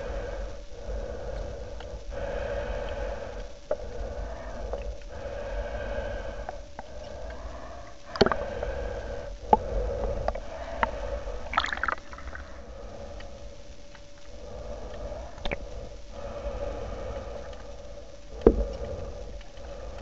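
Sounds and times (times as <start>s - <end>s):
underwater hum: 0.0s - 20.0s
water gurgle: 8.1s - 8.6s, 11.4s - 12.6s.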